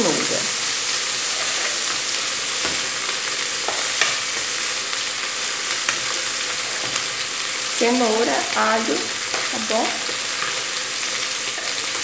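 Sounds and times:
carrot sizzling in hot oil: 0:00.0 - 0:12.0
spoon scraping and knocking pan: 0:01.3 - 0:04.6, 0:05.7 - 0:07.4, 0:08.8 - 0:10.7, 0:11.5 - 0:12.0.

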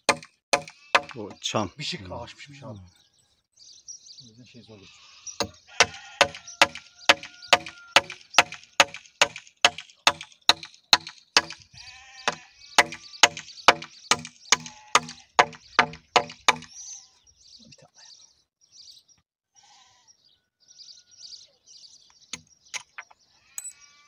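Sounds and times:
hammer driving nail into wood: 0:00.0 - 0:01.2, 0:05.4 - 0:11.6, 0:12.3 - 0:16.7.

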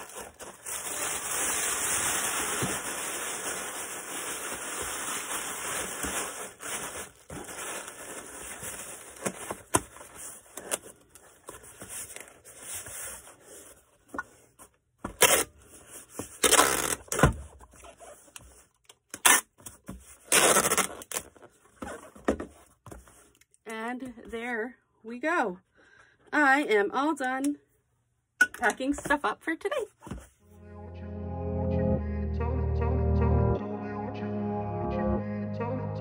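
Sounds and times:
packing material rustling: 0:00.0 - 0:13.9
tape strips tearing: 0:15.1 - 0:15.5, 0:16.4 - 0:17.2, 0:19.1 - 0:19.6, 0:20.2 - 0:21.3.

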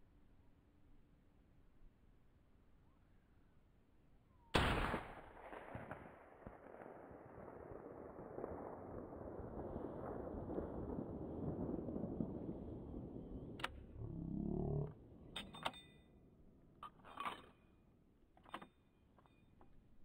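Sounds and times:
rifle shot deep boom: 0:04.6 - 0:07.5
rough rumbling noise: 0:09.0 - 0:15.5.

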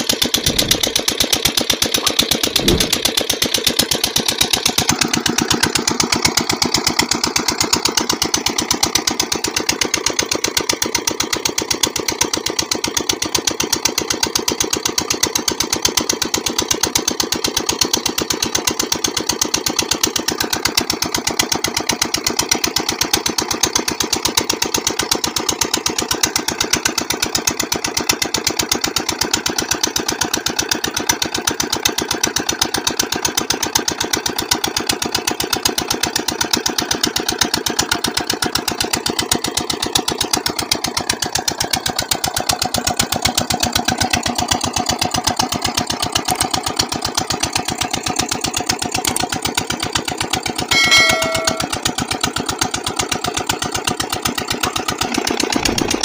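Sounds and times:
diesel engine chugging: 0:00.0 - 0:13.2, 0:37.5 - 0:56.0.

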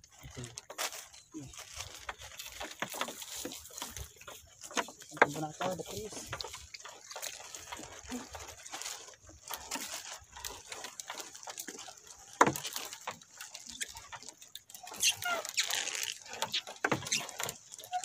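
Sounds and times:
water dripping and splashing: 0:00.1 - 0:18.0
net weights clicking and knocking: 0:02.1 - 0:08.2.

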